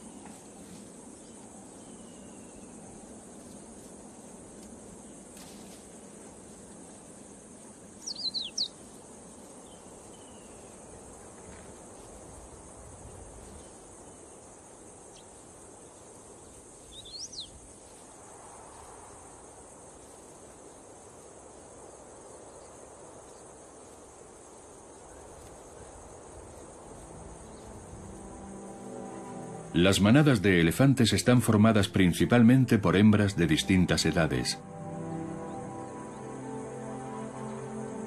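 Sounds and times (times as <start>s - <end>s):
insects droning: 0.0s - 38.0s
whistled bird calls: 8.0s - 8.8s, 16.9s - 17.5s.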